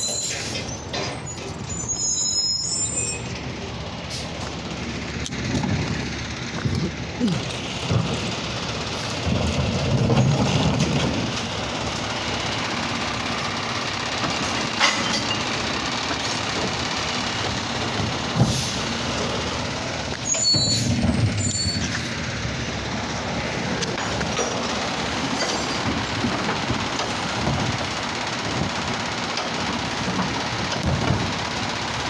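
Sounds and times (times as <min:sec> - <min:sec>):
high squeaks: 0:00.0 - 0:03.4, 0:20.1 - 0:22.1
garbage truck engine and machinery: 0:00.0 - 0:32.0.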